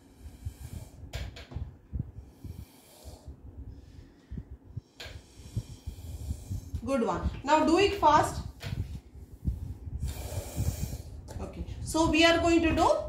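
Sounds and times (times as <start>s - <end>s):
child blowing through straw: 10.0s - 11.1s.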